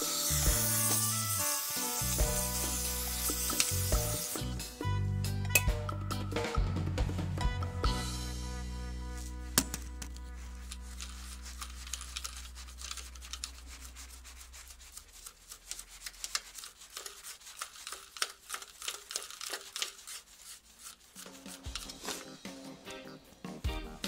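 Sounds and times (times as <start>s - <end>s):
stiff brush scrubbing metal: 0.0s - 4.8s, 10.2s - 22.8s.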